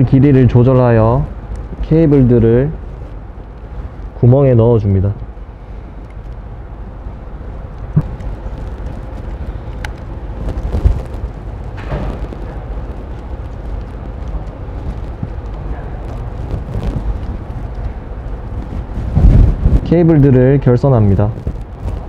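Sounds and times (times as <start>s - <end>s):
low background rumble: 0.0s - 22.0s
cables rustling: 5.9s - 19.9s.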